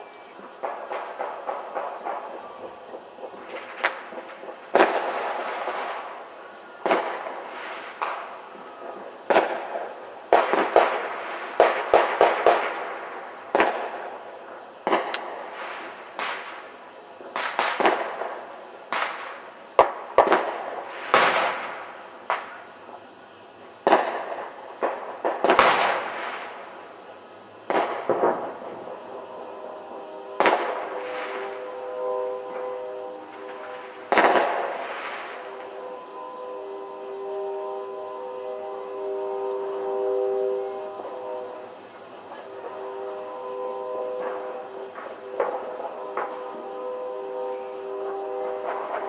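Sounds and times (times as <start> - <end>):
fireworks banging: 0.0 - 14.2, 14.8 - 23.1, 23.8 - 27.0, 27.6 - 49.0
firecracker pops: 13.6 - 13.9, 14.9 - 16.7, 17.3 - 18.3, 18.9 - 22.6, 23.9 - 26.6.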